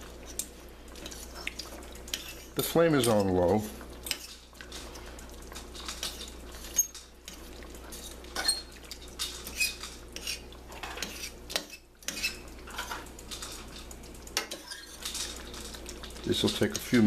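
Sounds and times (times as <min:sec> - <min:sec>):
fork scraping a metal pot: 0:01.0 - 0:03.3, 0:04.0 - 0:04.4, 0:05.8 - 0:13.6, 0:14.4 - 0:15.8.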